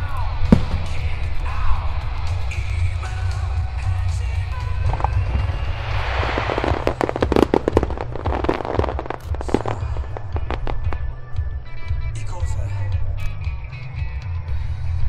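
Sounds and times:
firework crackles and pops: 0:00.0 - 0:11.1
steady low rumble: 0:00.0 - 0:13.5
firework rising hiss: 0:04.7 - 0:10.6.

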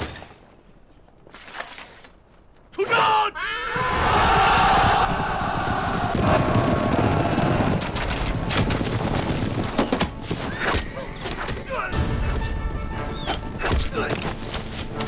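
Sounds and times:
sharp cracks and thuds: 0:03.8 - 0:11.6.

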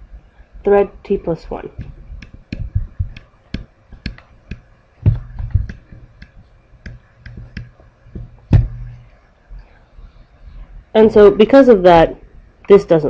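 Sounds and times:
stylus tapping on tablet screen: 0:01.7 - 0:09.2
louder knocks: 0:05.0 - 0:09.0.

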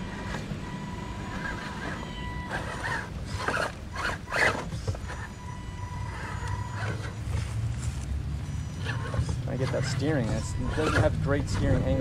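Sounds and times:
toy car motor whining: 0:00.0 - 0:07.5, 0:08.6 - 0:12.0
short rough bursts: 0:08.8 - 0:12.0.

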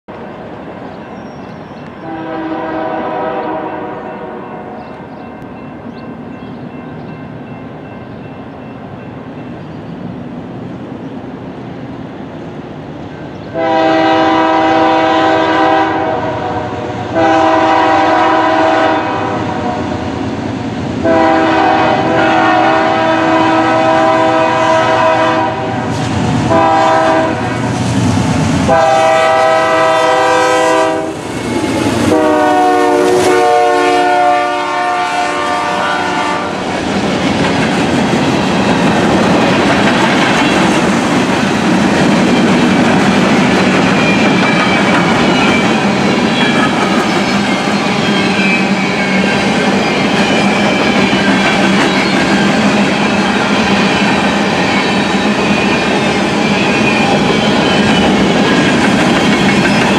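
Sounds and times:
locomotive chime air horn: 0:02.0 - 0:05.0, 0:13.5 - 0:19.8, 0:21.0 - 0:25.8, 0:26.5 - 0:27.6, 0:28.7 - 0:31.2, 0:32.1 - 0:36.6
locomotive engine and wheels: 0:22.6 - 0:34.0, 0:35.9 - 0:59.9.

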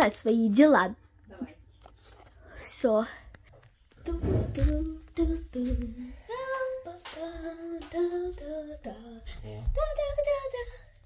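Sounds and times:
girl singing: 0:03.9 - 0:11.0
low thumps: 0:04.0 - 0:06.2.

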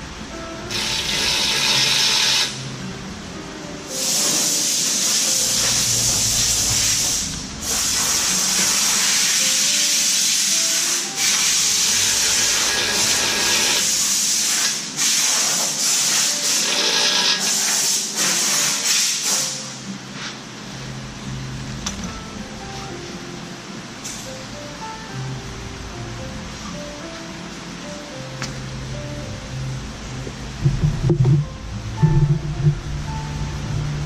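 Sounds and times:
compressed air hissing: 0:00.7 - 0:02.6, 0:03.9 - 0:19.8.

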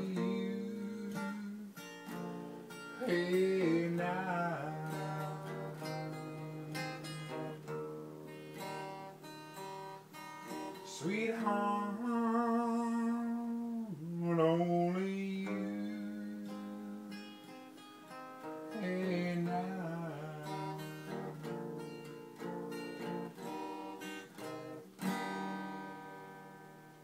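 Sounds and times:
man singing: 0:00.0 - 0:07.8, 0:10.6 - 0:17.3, 0:18.6 - 0:21.5
acoustic guitar strumming: 0:00.0 - 0:27.0.

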